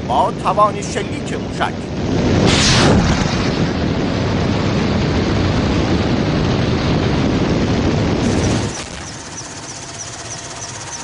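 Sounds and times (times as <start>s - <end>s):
heavy rushing noise: 1.0s - 11.0s
missile launch blast: 2.0s - 9.1s.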